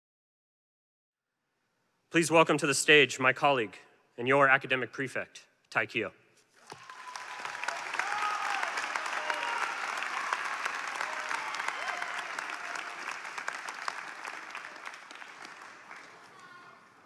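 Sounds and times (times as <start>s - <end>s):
audience applauding: 6.6s - 17.0s
voices among clapping: 6.6s - 17.0s.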